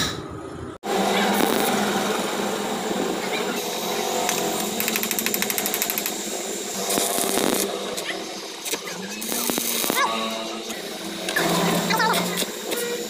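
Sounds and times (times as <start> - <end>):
metalworking tool whirring: 0.9 - 13.0
rapid crackling clicks: 4.3 - 10.0.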